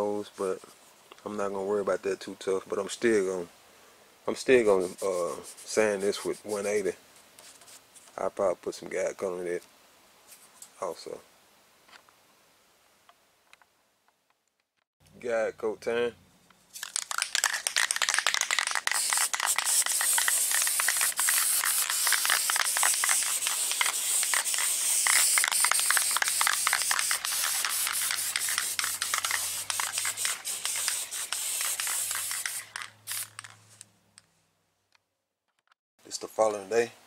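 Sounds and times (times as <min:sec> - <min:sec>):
aerosol spray paint hissing: 0:16.8 - 0:33.6.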